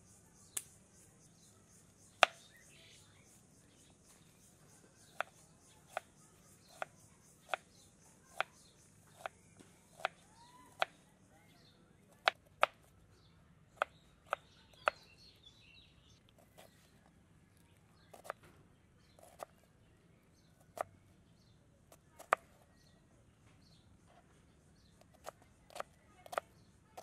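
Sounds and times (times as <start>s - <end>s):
knife chopping on cutting board: 5.0s - 7.6s, 8.3s - 8.5s, 18.1s - 18.4s.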